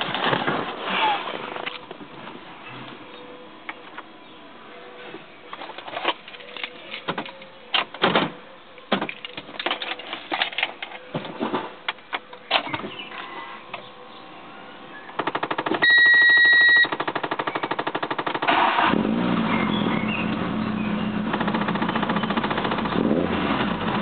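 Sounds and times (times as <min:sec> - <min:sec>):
high electronic beep: 0:15.8 - 0:16.9
starter cranking engine: 0:18.4 - 0:19.2.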